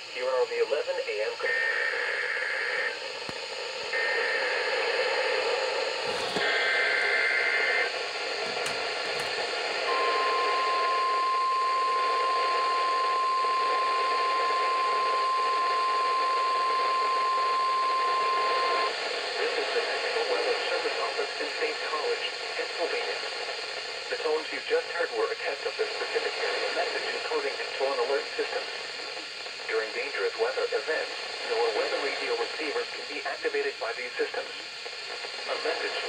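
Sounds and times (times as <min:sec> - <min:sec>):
radio static hiss: 0:00.0 - 0:36.0
screeching data bursts: 0:01.4 - 0:03.0.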